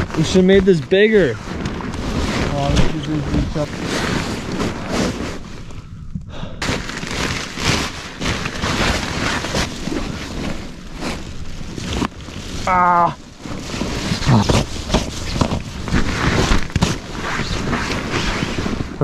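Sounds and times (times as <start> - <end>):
rustling and crinkling: 0.0 - 19.0.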